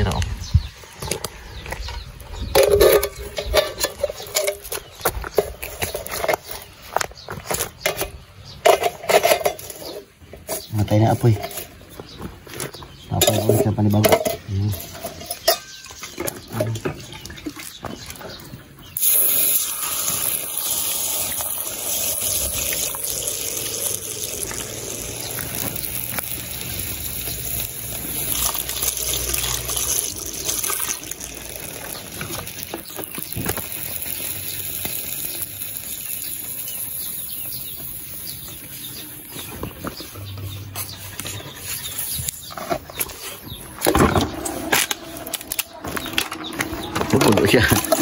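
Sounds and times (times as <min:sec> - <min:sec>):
water splashing over stone: 0:19.0 - 0:35.8.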